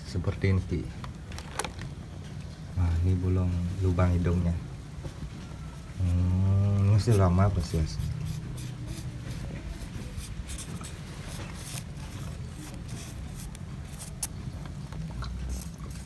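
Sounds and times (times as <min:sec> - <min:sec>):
marker scratching on wood: 0:07.0 - 0:14.3.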